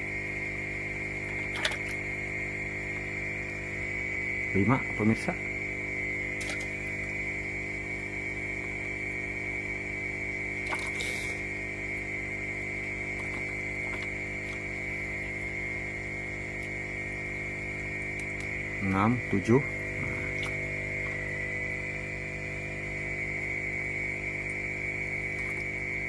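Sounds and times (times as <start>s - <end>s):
water movement in bucket: 0.0s - 3.9s, 6.2s - 7.2s, 10.2s - 23.2s, 24.2s - 26.0s
electrical hum with high whine: 0.0s - 26.0s.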